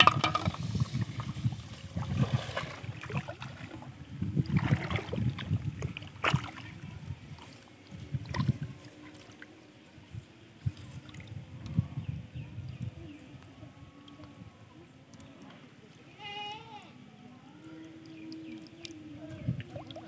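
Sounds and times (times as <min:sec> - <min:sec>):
water sloshing and splashing: 0:00.0 - 0:11.7, 0:18.0 - 0:20.0.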